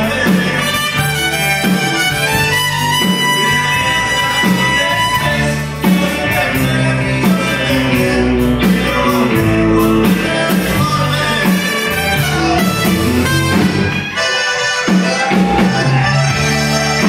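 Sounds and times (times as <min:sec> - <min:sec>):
trumpet: 0:00.0 - 0:06.5, 0:10.8 - 0:17.0
button accordion: 0:00.0 - 0:17.0
live band playing: 0:00.0 - 0:17.0
person singing: 0:00.0 - 0:17.0.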